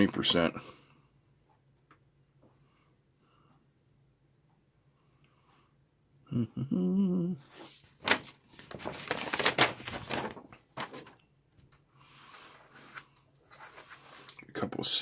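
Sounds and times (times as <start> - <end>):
man humming: 6.2 - 7.5
paper sheet rustling and crinkling: 7.5 - 14.3.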